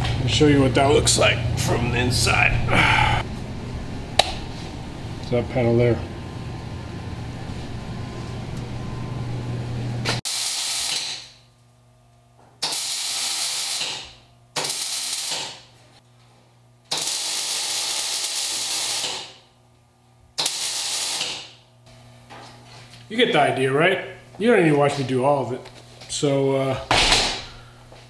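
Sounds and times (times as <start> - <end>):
steady hum and hiss: 0.0 - 28.0
welder sizzling bursts: 10.3 - 11.2, 12.6 - 14.0, 14.6 - 15.6, 16.9 - 19.4, 20.4 - 21.6.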